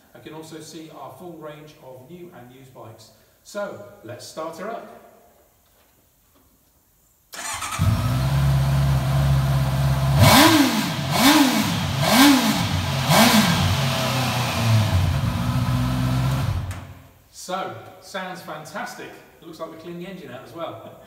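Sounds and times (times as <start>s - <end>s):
motorcycle engine starting and revving: 7.4s - 17.1s.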